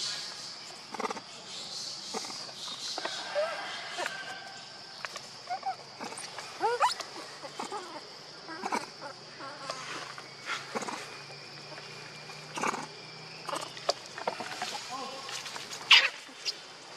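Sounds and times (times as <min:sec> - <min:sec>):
insects buzzing: 0:00.0 - 0:16.9.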